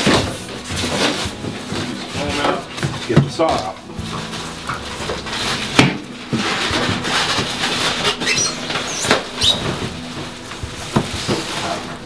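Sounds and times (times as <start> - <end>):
cardboard and plastic wrap rustling: 0.0 - 12.0
short squeaky scrapes: 6.6 - 9.8.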